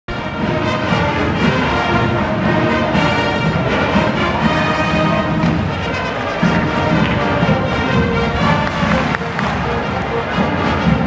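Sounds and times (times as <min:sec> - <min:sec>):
marching band playing: 0:00.1 - 0:11.0.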